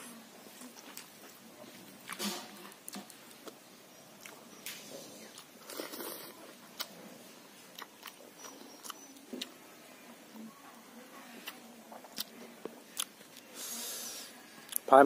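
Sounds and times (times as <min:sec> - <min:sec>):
chewing: 0:00.5 - 0:03.6, 0:04.2 - 0:13.8, 0:14.5 - 0:14.9.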